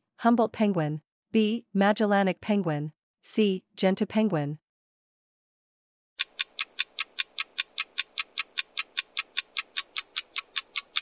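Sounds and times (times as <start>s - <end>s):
clock ticking: 6.2s - 11.0s.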